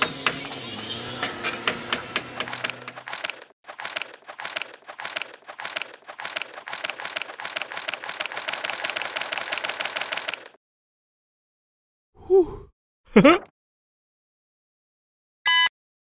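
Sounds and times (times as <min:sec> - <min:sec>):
calendar pages flicking: 0:02.4 - 0:10.6.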